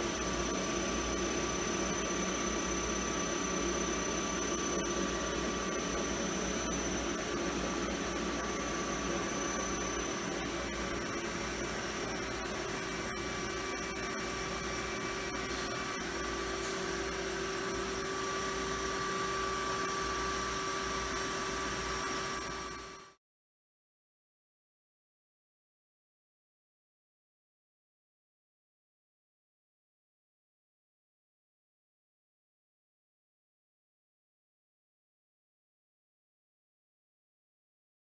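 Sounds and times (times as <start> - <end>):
lathe machine hum and whine: 0.0 - 23.2.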